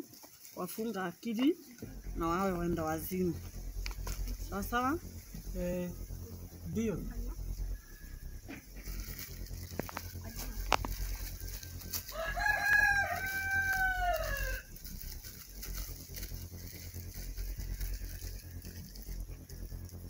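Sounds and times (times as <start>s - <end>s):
rooster crowing: 10.6s - 15.4s.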